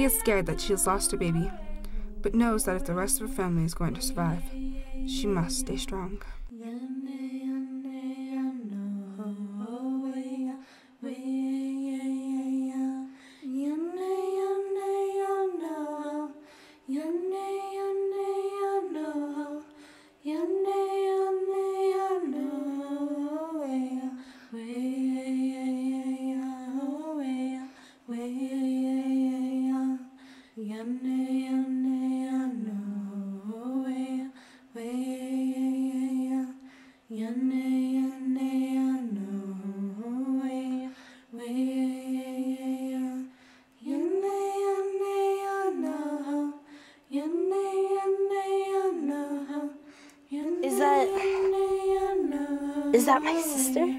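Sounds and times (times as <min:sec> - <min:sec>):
woman singing unaccompanied: 0:00.0 - 0:16.2, 0:50.3 - 0:53.9.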